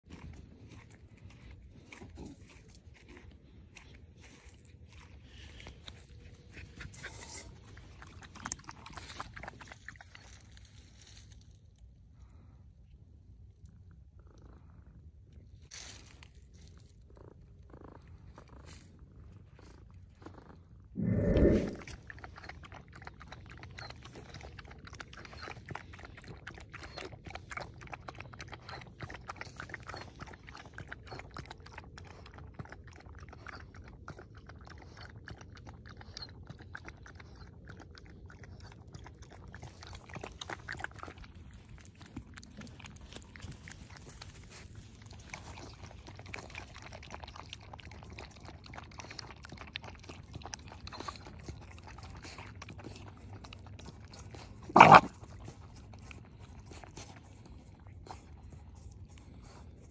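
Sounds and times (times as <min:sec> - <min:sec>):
animals lapping from a bowl: 0:00.0 - 0:59.9.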